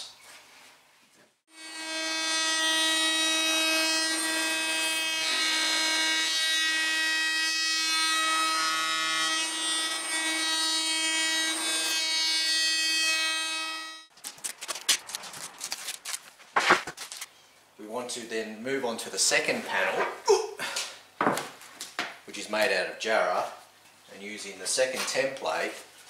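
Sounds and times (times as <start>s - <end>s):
router bit cutting wood: 1.5s - 14.1s.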